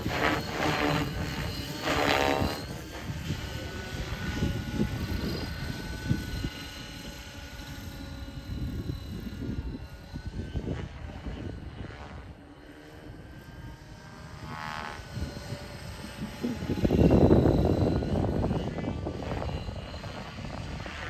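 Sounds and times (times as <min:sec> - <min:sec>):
rc helicopter motor whine: 0:00.0 - 0:21.0
wind rumble on microphone: 0:00.0 - 0:21.0.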